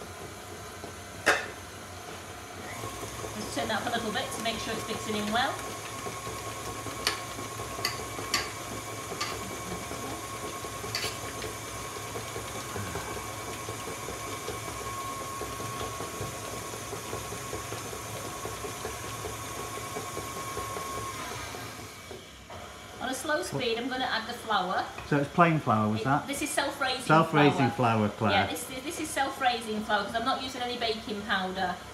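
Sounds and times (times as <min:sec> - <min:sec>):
stand mixer whining: 0:00.0 - 0:01.2, 0:02.0 - 0:22.9.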